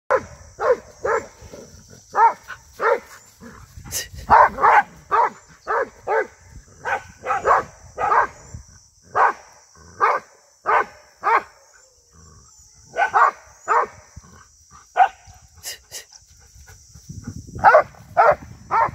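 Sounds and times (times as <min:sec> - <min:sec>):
dog barking: 0:00.1 - 0:01.4, 0:02.1 - 0:03.1, 0:04.3 - 0:08.4, 0:09.1 - 0:11.6, 0:12.9 - 0:14.0, 0:14.9 - 0:15.3, 0:17.6 - 0:18.9.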